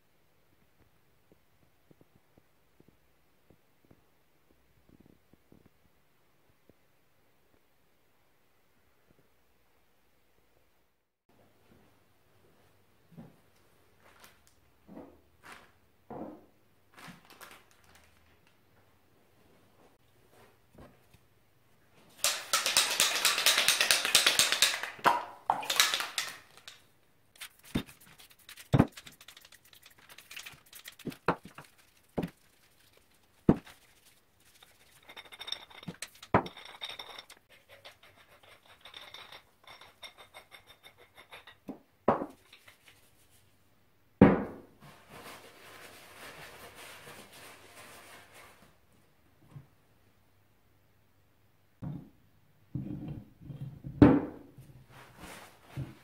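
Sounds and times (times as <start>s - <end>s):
rag rubbing metal parts: 33.6s - 41.6s.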